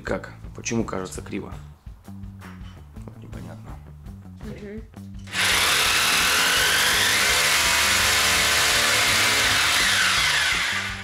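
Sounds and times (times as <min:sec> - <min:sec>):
power tool whirring: 0:05.3 - 0:11.0.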